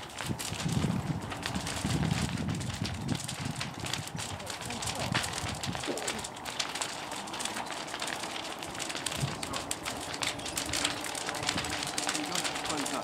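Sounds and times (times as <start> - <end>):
fire crackling and popping: 0.0 - 13.0
flames roaring steadily: 0.0 - 13.0.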